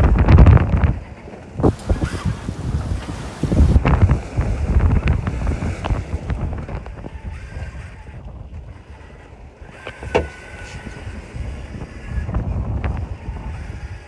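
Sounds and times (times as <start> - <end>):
wind buffeting microphone: 0.0 - 14.0
water rushing past hull: 1.5 - 7.1.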